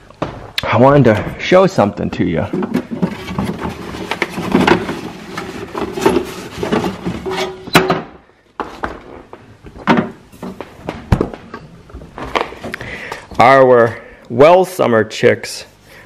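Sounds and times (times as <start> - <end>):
items knocked in refrigerator: 6.0 - 9.0.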